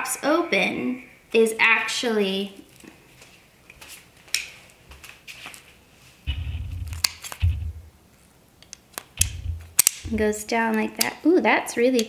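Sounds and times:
thuds and rubbing of webbing: 0:06.3 - 0:07.9, 0:09.2 - 0:10.4
buckle clicking: 0:08.6 - 0:10.1.

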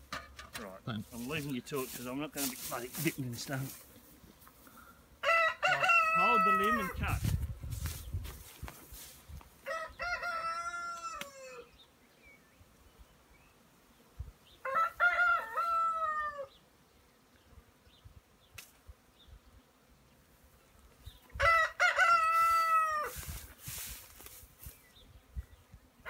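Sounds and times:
rooster crowing: 0:05.2 - 0:07.0, 0:09.6 - 0:11.7, 0:14.6 - 0:16.6, 0:21.4 - 0:23.3.

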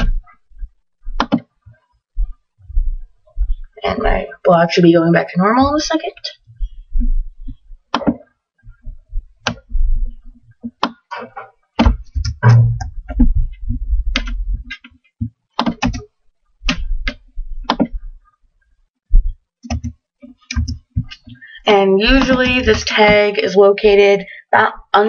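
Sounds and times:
keyboard and mouse clicks: 0:01.1 - 0:01.5, 0:07.4 - 0:08.3, 0:09.4 - 0:09.8, 0:10.5 - 0:18.0, 0:19.2 - 0:21.4, 0:22.0 - 0:23.3
dull low thump: 0:11.8 - 0:14.7.

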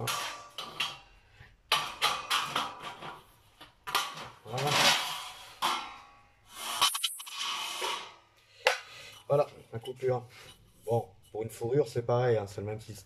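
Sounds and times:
metal pieces knocking together: 0:00.0 - 0:01.1, 0:01.7 - 0:06.2, 0:06.8 - 0:08.2.

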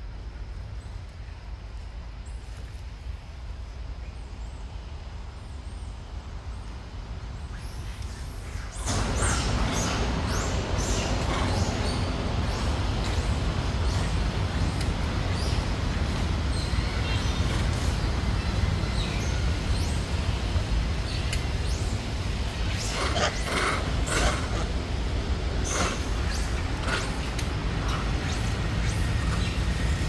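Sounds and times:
rushing noise with low rumble: 0:00.0 - 0:30.0
birds chirping: 0:07.4 - 0:30.0.

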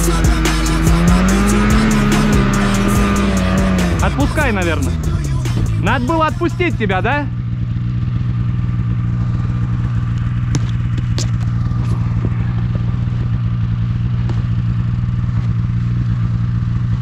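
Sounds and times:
snowmobile engine running: 0:00.0 - 0:17.0.

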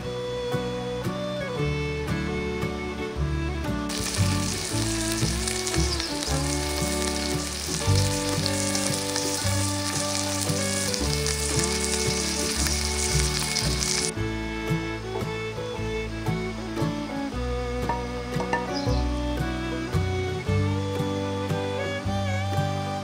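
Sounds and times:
background music: 0:00.0 - 0:23.0
steak sizzling in skillet: 0:03.9 - 0:14.1.

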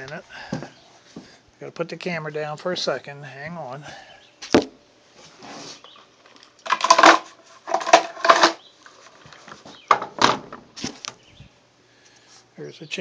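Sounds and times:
handling scraping and knocking: 0:05.8 - 0:11.2.

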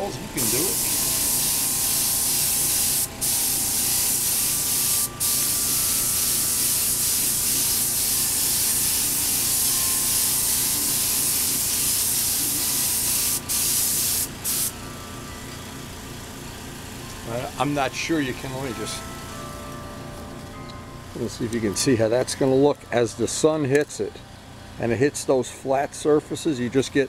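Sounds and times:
paint spray gun hissing: 0:00.4 - 0:14.8.

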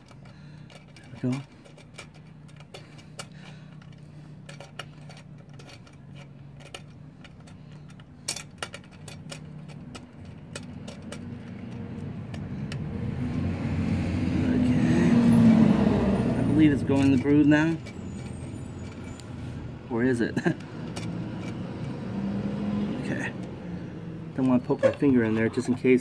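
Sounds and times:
steady low hum: 0:00.0 - 0:15.2.

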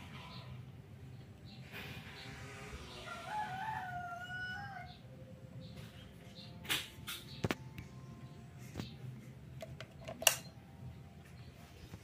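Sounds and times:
rooster crowing: 0:02.9 - 0:05.1.

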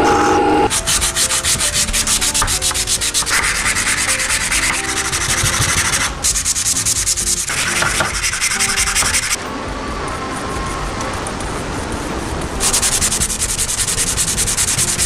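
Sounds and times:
wood scratching on sandpaper: 0:00.7 - 0:09.4, 0:12.6 - 0:15.0.

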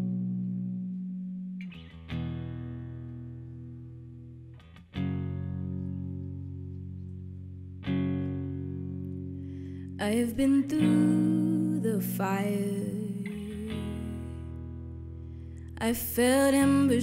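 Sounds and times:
guitar chords ringing: 0:00.0 - 0:17.0.

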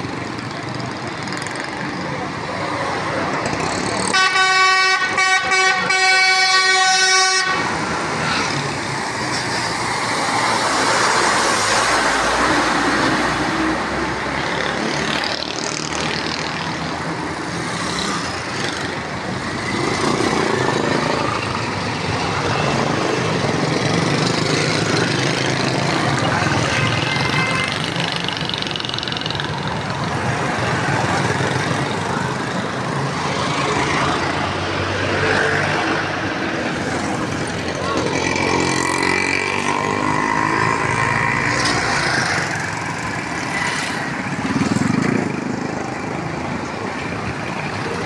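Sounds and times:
street traffic: 0:00.0 - 0:48.0
vehicle horn blast: 0:04.1 - 0:07.7.

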